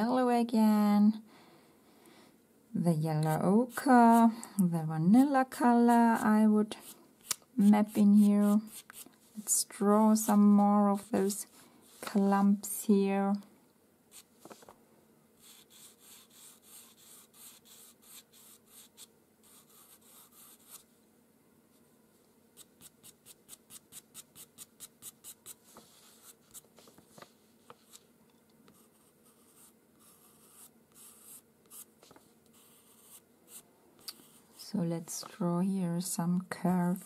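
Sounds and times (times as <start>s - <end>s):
pencil scratching on paper: 7.6s - 9.5s, 15.4s - 20.8s, 28.7s - 34.6s.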